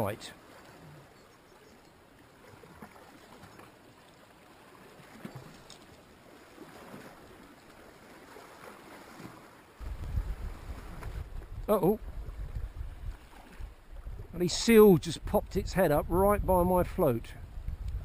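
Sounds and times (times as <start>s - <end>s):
faint sea lapping: 0.0s - 15.2s
wind rumble on microphone: 9.8s - 18.0s.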